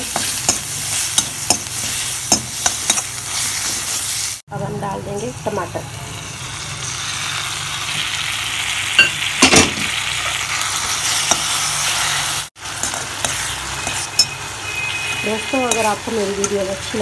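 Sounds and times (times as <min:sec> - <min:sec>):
food sizzling in hot oil: 0:00.0 - 0:04.4, 0:05.0 - 0:17.0
spoon scraping metal pan: 0:15.1 - 0:16.7.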